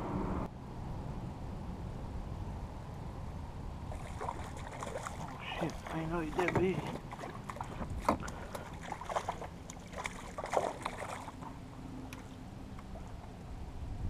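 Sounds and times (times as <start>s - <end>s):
fish thrashing and splashing: 3.9s - 12.3s.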